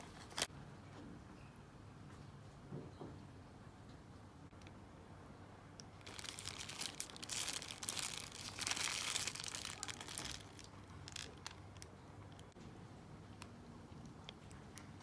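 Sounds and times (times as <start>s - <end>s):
paper wrapper crinkling: 0.0s - 0.5s, 6.0s - 12.5s.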